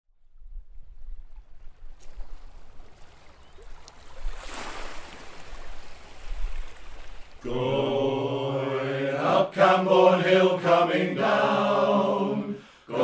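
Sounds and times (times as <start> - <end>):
water lapping and splashing: 0.4 - 7.6
rush of water: 0.8 - 8.0.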